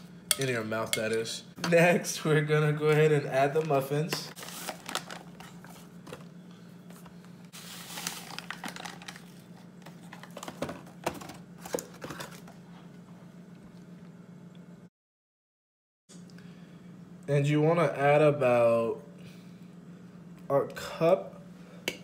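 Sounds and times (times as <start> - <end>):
paper pouches crinkling: 4.4 - 5.9, 7.6 - 10.6
dry mix pouring: 7.5 - 9.5.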